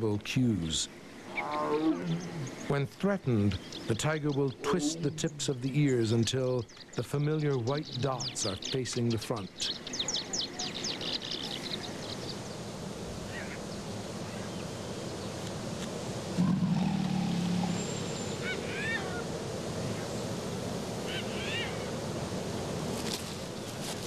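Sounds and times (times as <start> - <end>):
outdoor background: 0.0 - 24.0
bird chirping: 1.1 - 12.6, 16.4 - 19.1
low drawn-out animal call: 1.3 - 2.7, 16.3 - 19.2.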